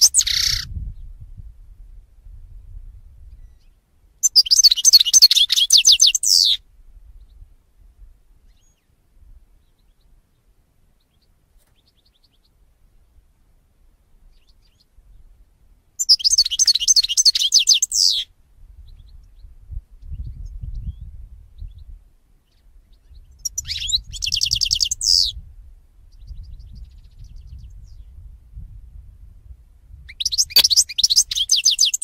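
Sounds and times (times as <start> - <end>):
goldfinch singing: 0.0 - 0.7, 4.2 - 6.6, 16.0 - 18.2, 23.4 - 25.3, 30.1 - 32.0.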